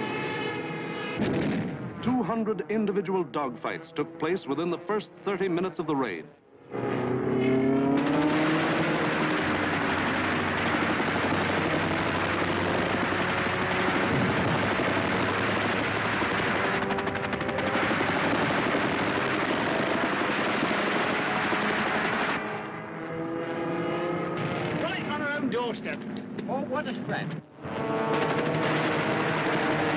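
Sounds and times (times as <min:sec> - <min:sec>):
plane engines droning: 0:00.0 - 0:29.9
rapid machine-gun fire: 0:08.0 - 0:22.5, 0:28.1 - 0:29.9.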